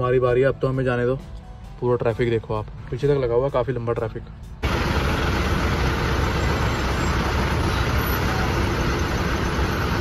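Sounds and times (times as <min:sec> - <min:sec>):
truck engine rumbling: 0:04.3 - 0:10.0.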